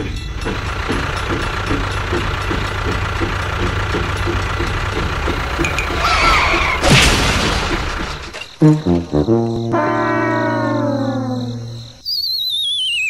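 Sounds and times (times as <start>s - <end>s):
tractor engine chugging: 0.0s - 8.5s
wavering high tone: 9.7s - 13.0s.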